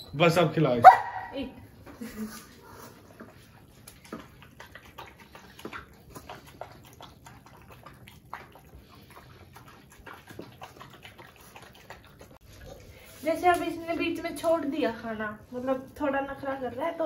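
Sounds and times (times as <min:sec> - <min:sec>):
dog eating from a bowl: 0:02.6 - 0:15.1.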